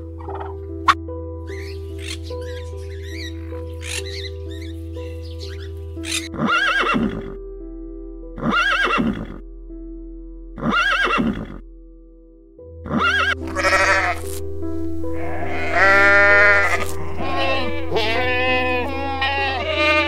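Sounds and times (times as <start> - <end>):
background music: 0.0 - 20.0
horse whinnying: 6.3 - 7.3, 8.4 - 9.4, 10.6 - 11.6, 12.9 - 14.2.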